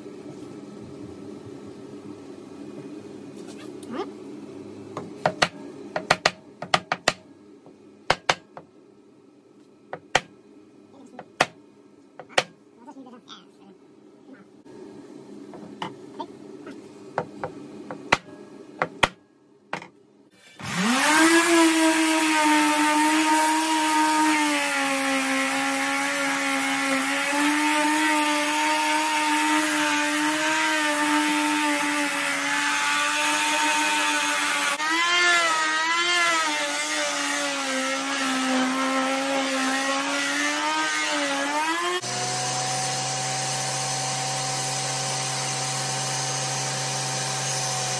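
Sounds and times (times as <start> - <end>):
orbital sander on wood: 20.6 - 47.9.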